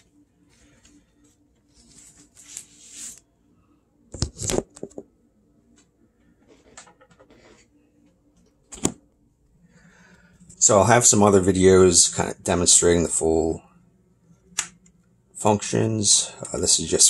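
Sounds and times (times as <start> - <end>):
record handling rustle: 4.2 - 5.1.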